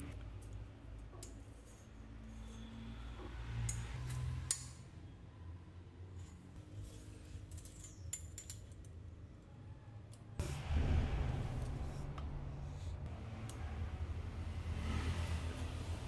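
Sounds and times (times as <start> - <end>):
low steady hum: 10.4 - 14.6.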